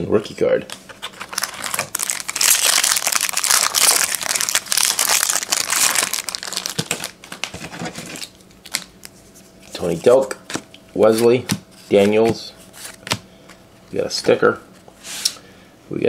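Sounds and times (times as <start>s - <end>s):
foil pack crinkling: 0.9s - 10.0s.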